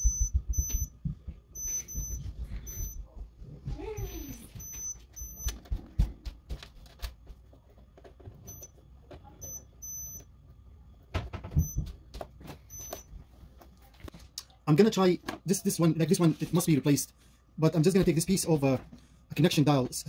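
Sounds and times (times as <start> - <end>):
multimeter high beeps: 0.0 - 1.0, 1.6 - 3.1, 4.0 - 5.6, 8.4 - 8.8, 9.4 - 10.3, 11.5 - 11.9, 12.7 - 13.1.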